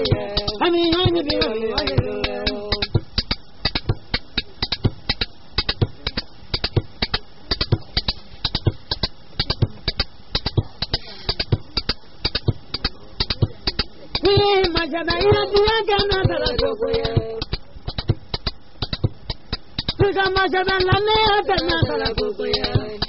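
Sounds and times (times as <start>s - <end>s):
person singing: 0.0s - 3.0s, 14.2s - 17.4s, 20.0s - 23.0s
percussion sharp strikes: 0.0s - 23.0s.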